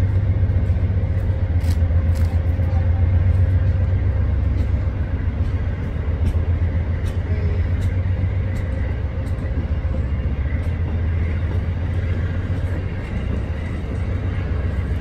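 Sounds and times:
train wheels rumbling on rails: 0.0 - 15.0
sharp rail clicks: 0.7 - 2.8.

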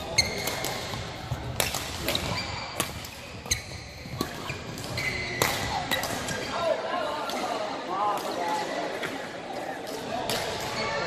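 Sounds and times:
shoe squeaking on floor: 0.0 - 0.7, 2.2 - 5.4
badminton rackets striking shuttlecock: 0.2 - 6.5.

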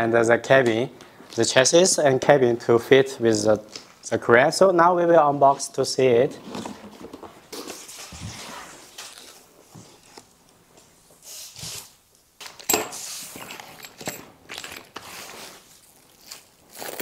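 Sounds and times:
plastic bags and bubble wrap rustling: 5.4 - 17.0.

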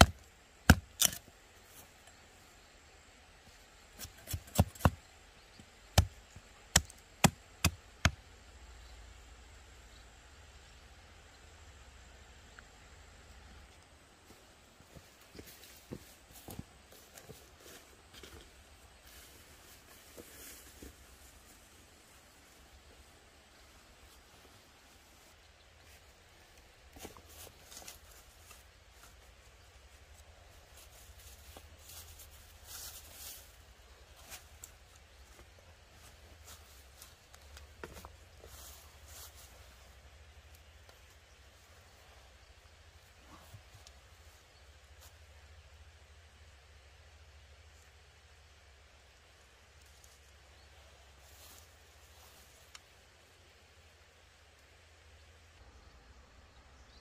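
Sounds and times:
machete chopping wood: 0.0 - 1.2, 4.0 - 5.0
rustling on dry leaves: 14.9 - 41.7, 49.8 - 52.9.

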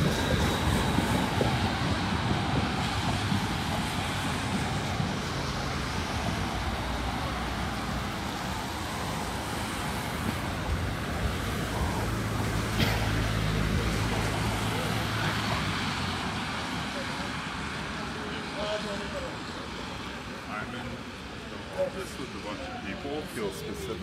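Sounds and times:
city street traffic: 0.0 - 24.0
passing train: 0.0 - 24.0.

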